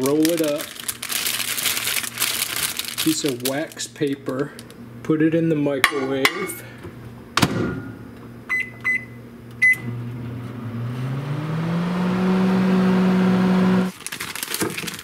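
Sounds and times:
wax paper crinkling: 0:00.0 - 0:04.8, 0:13.9 - 0:15.0
microwave oven humming: 0:06.6 - 0:13.9
keypad beeps: 0:08.5 - 0:09.9.

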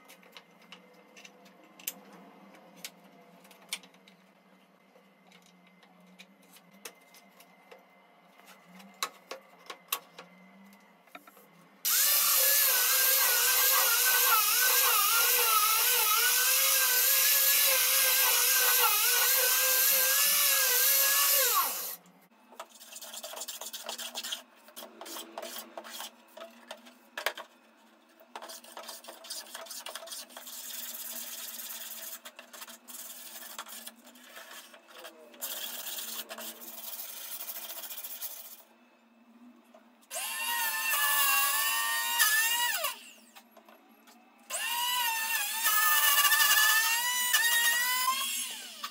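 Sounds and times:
angle grinder sanding wood: 0:11.9 - 0:22.0
sandpaper rubbing on wood: 0:28.5 - 0:38.6.

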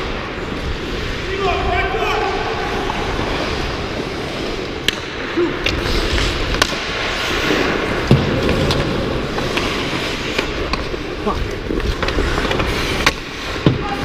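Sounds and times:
ice skates scraping: 0:00.0 - 0:14.0
stick and puck clicks: 0:04.8 - 0:07.0, 0:08.0 - 0:13.8.

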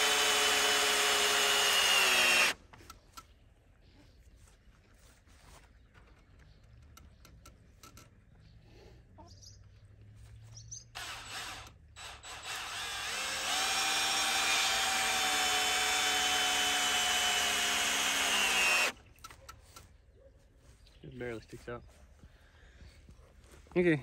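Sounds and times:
cordless drill into wood: 0:00.0 - 0:02.6, 0:11.0 - 0:19.0.

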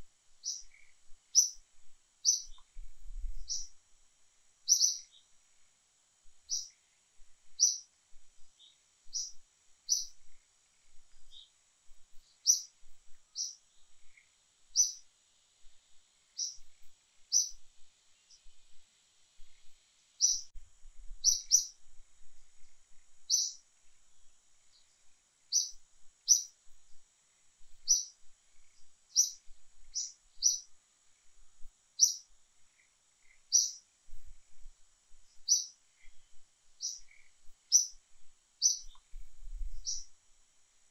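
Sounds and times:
faint high-pitched hum: 0:00.0 - 0:40.9
bird chirping: 0:00.4 - 0:03.8, 0:04.6 - 0:05.4, 0:06.5 - 0:06.8, 0:07.5 - 0:07.9, 0:08.5 - 0:11.6, 0:12.2 - 0:15.1, 0:16.3 - 0:18.5, 0:19.4 - 0:20.5, 0:21.2 - 0:21.8, 0:23.3 - 0:23.6, 0:24.6 - 0:26.6, 0:27.8 - 0:30.8, 0:32.0 - 0:33.8, 0:35.3 - 0:38.0, 0:38.6 - 0:40.1.

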